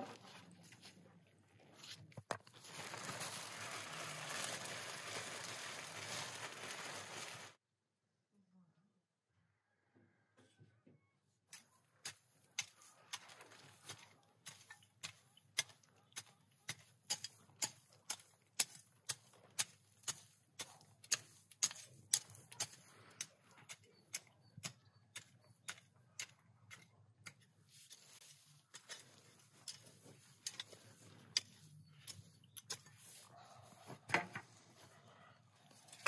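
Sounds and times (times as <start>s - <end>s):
garden hoe striking soil: 11.5s - 33.3s.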